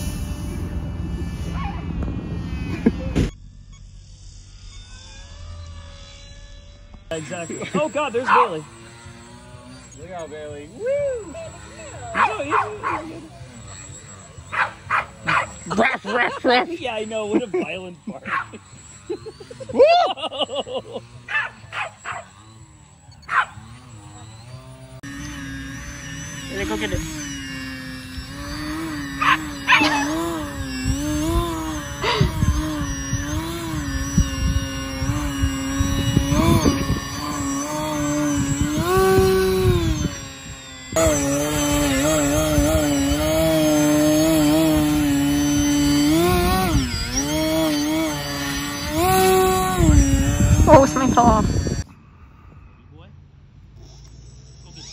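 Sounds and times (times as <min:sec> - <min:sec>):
steady hum: 0:00.0 - 0:52.7
model plane motor whining: 0:00.0 - 0:54.9
dog barking: 0:08.3 - 0:08.5, 0:12.2 - 0:13.1, 0:14.5 - 0:15.6, 0:23.3 - 0:23.6, 0:29.2 - 0:30.1.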